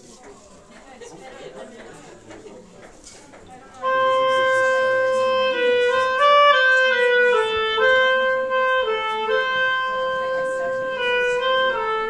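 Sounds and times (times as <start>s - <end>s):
solo clarinet melody: 3.8s - 12.0s.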